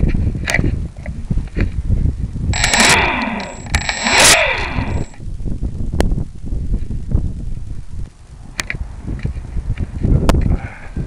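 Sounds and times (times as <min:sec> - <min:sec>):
wind and airframe rumble: 0:00.0 - 0:11.0
model plane motor: 0:02.6 - 0:05.2.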